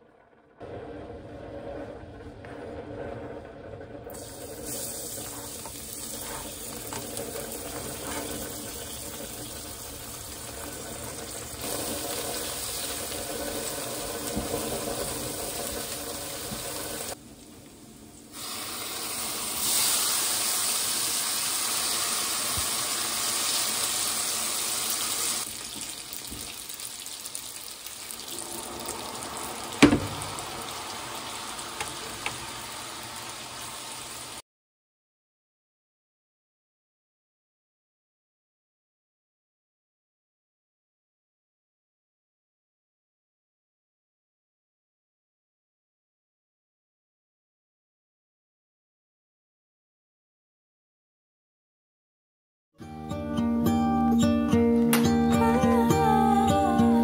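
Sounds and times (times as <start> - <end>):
stirring in frying pan: 3.1 - 17.2
garlic sizzling in oil: 4.1 - 34.4
sharp knock: 29.8 - 30.3.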